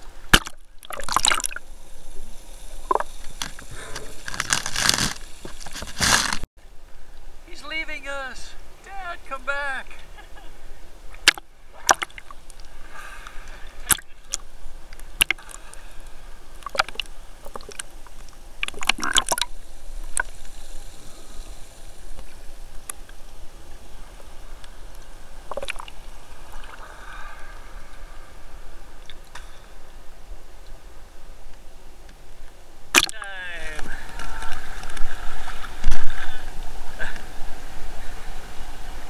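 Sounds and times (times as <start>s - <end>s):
seawater sloshing and splashing: 2.8s - 6.4s.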